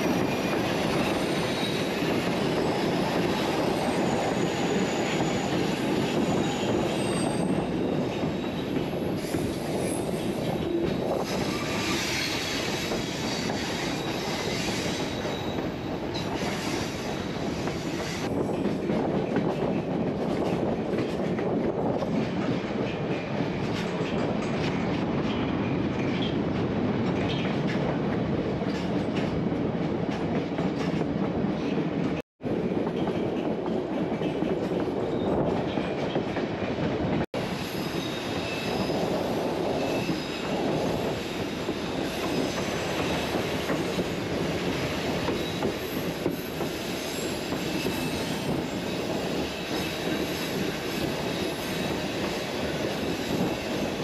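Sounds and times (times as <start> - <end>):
high wheel squeal: 0.0 - 18.3, 37.5 - 44.1, 45.1 - 54.0
train rolling rumble: 0.0 - 54.0.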